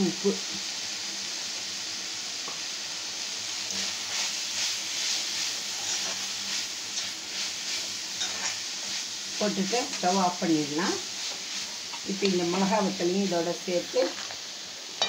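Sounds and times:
food sizzling in oil: 0.0 - 15.0
metal spoon scraping pan: 5.8 - 6.3, 8.1 - 9.0.

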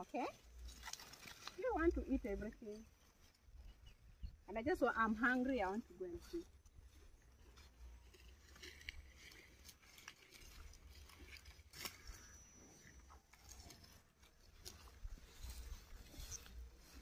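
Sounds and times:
faint clicks and rustles: 0.0 - 4.6, 5.5 - 17.0.

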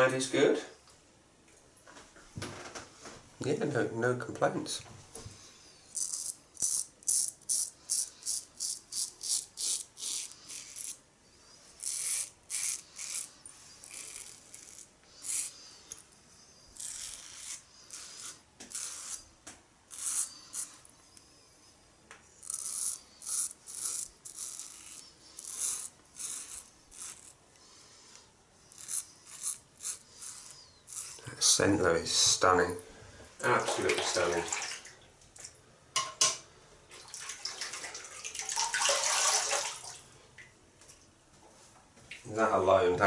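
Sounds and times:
razor scraping stubble: 5.9 - 11.0, 11.6 - 16.0, 16.6 - 21.0, 22.3 - 31.9.

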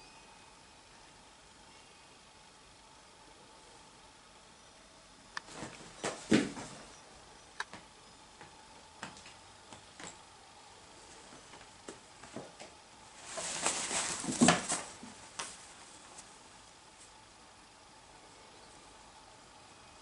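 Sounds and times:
kittens scuffling on fabric mat: 5.5 - 7.0, 11.0 - 16.4.

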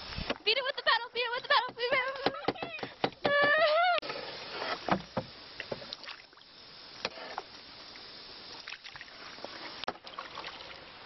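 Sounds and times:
knocks: 1.6 - 3.6
paddle splashing in water: 8.6 - 10.8.

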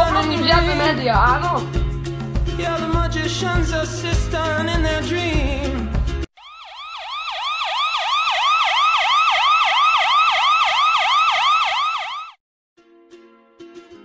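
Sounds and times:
police siren yelping: 6.4 - 12.4.

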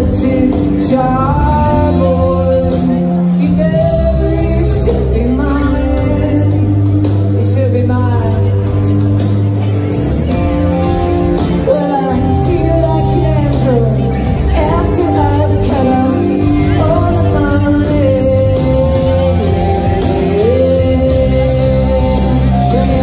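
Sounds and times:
drums: 0.0 - 23.0
electric guitar: 0.0 - 23.0
low bass notes: 0.0 - 23.0
woman singing: 11.6 - 23.0.

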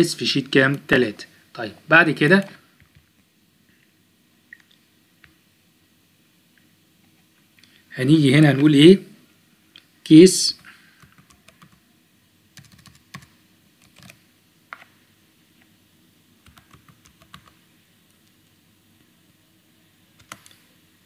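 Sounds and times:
faint keyboard keystrokes: 20.2 - 20.6.

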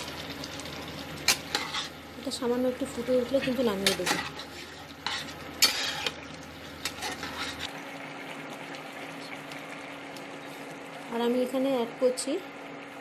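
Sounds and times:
curry sizzling: 0.0 - 13.0
spatula scraping a pan: 1.3 - 2.0, 3.0 - 7.7.

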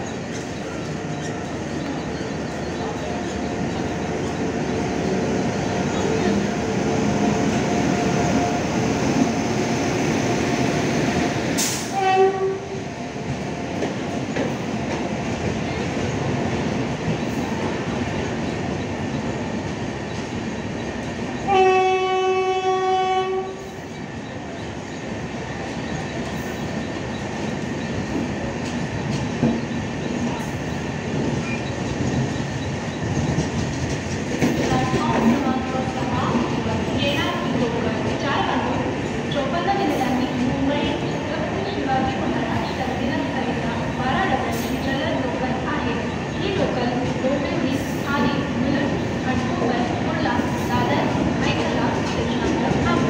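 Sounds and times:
train wheels rumbling on rails: 0.0 - 53.0
train horn blast: 11.7 - 12.7, 21.5 - 23.7.

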